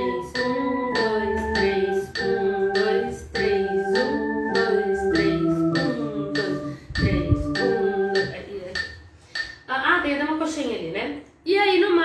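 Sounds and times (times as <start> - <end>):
electronic organ playing a hymn: 0.0 - 8.4
woman singing: 0.0 - 8.8
metronome clicking: 0.0 - 9.6.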